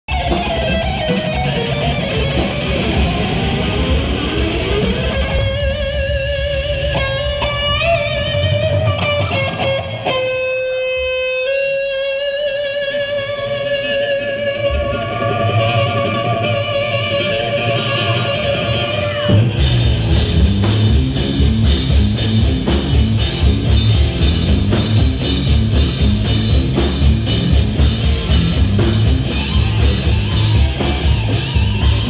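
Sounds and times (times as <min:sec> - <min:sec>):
bass: 0:00.0 - 0:32.0
drums and cymbals: 0:00.1 - 0:11.8, 0:14.6 - 0:32.0
electric guitar with vibrato: 0:00.1 - 0:32.0.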